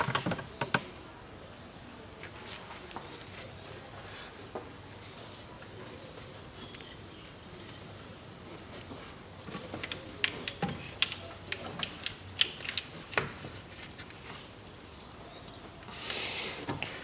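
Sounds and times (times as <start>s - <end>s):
sharp clicks and light knocks: 9.5s - 14.2s.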